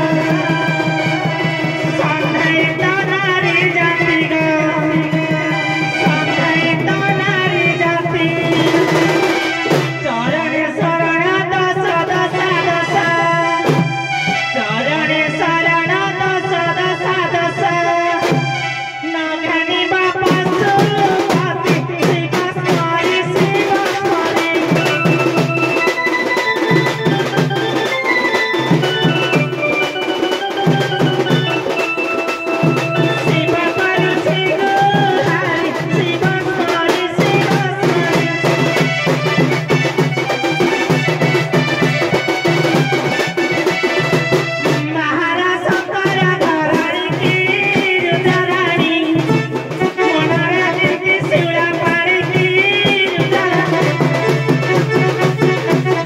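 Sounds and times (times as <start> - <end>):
reed-like melody: 0.0 - 10.7, 23.5 - 44.8
drums beating fast rhythm: 0.0 - 56.0.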